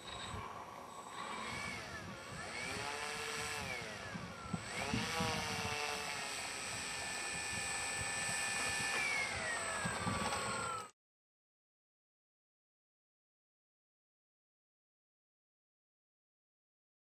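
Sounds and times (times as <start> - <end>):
electric motor and propeller whining: 0.0 - 11.0.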